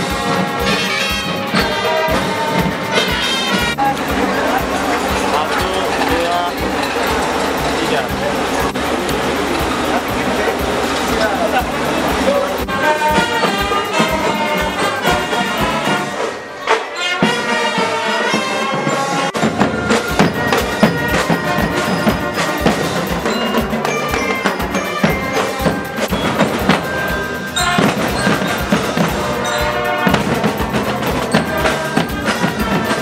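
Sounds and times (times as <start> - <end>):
marching snare and bass drums: 0.0 - 16.4, 17.2 - 33.0
brass horns: 0.0 - 33.0.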